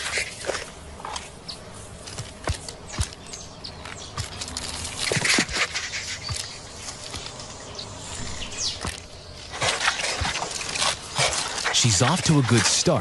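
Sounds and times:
claws scraping on tree bark: 2.0 - 13.0.

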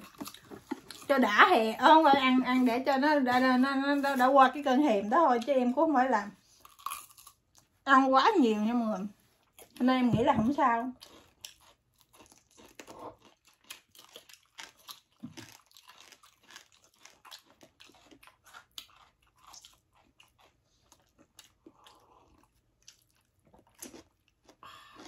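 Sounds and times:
close-up chewing with crackles: 0.0 - 2.7, 10.8 - 25.0.

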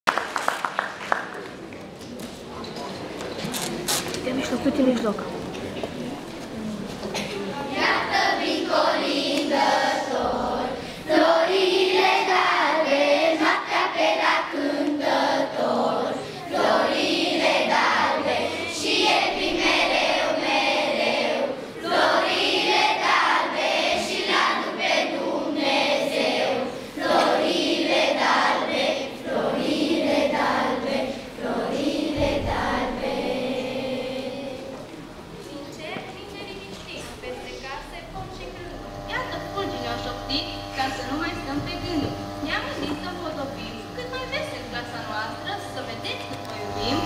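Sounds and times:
children's choir singing: 7.7 - 34.9.

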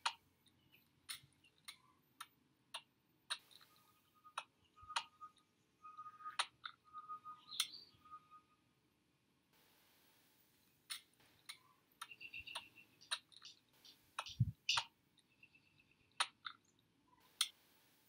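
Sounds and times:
faint high chirps: 3.3 - 8.9, 11.3 - 17.5
sharp clicks and ticks: 10.9 - 15.4.

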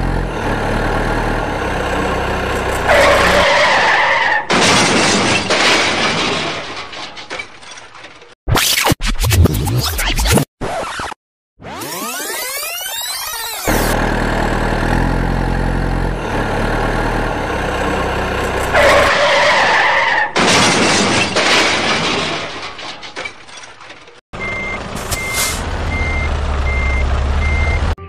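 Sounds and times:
truck engine running: 0.0 - 4.0, 13.7 - 19.7, 24.4 - 28.0
reversing alarm beeping: 24.4 - 28.0.

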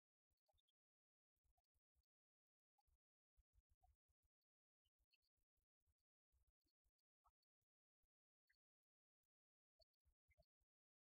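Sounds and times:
faint ticks: 0.0 - 11.0.

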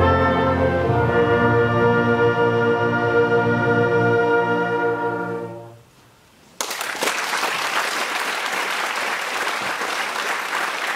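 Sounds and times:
audience applause: 6.6 - 10.9.

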